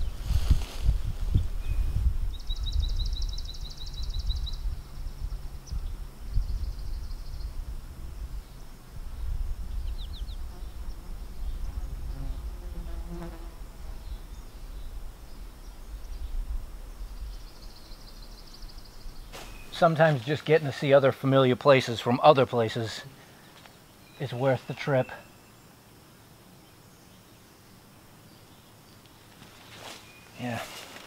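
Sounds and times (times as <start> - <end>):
low microphone rumble: 0.0 - 12.7
insect buzzing: 0.0 - 19.8.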